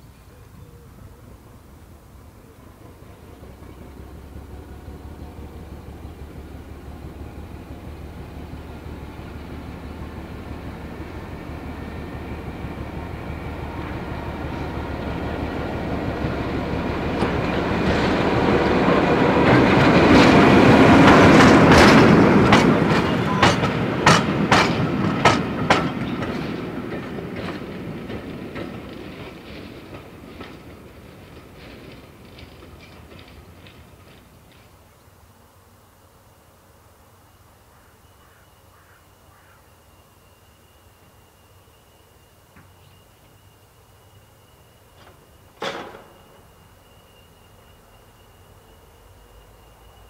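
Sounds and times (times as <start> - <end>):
diesel locomotive engine drone: 0.0 - 50.0
wheels clicking over rail joint: 17.1 - 34.8, 44.9 - 47.6.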